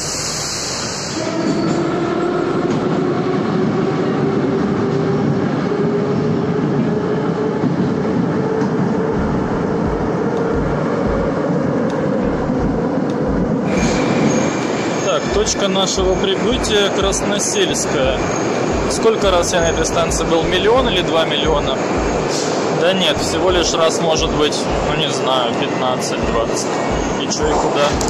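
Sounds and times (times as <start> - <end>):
train wheels rumbling on rails: 0.0 - 28.0
low thumps: 8.6 - 14.2.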